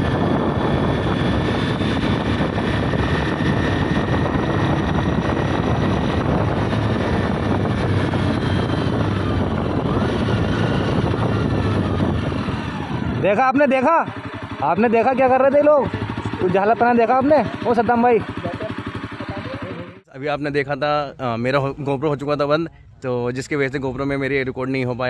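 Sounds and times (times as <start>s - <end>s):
wind noise: 0.0s - 13.2s
motorcycle engine running: 0.0s - 20.1s.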